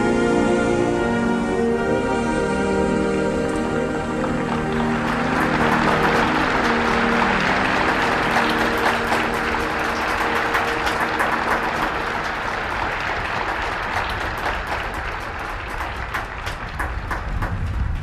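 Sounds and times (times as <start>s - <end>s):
held music chord: 0.0s - 13.8s
audience applause: 3.5s - 18.0s.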